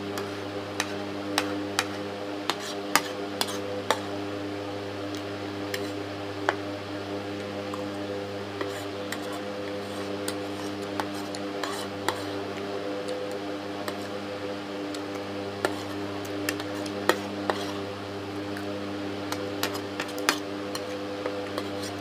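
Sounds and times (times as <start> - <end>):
steady low hum: 0.0 - 22.0
metal spoon scraping ceramic plate: 8.6 - 12.4, 15.6 - 17.8.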